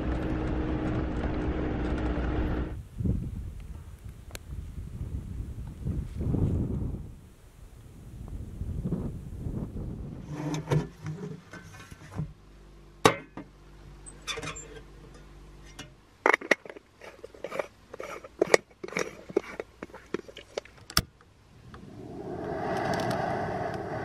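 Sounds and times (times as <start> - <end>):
moka pot parts clinking: 15.7 - 20.7.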